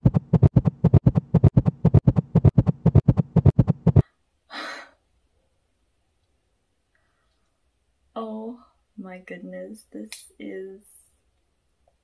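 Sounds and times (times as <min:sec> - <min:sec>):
heartbeat through a stethoscope: 0:00.0 - 0:04.0.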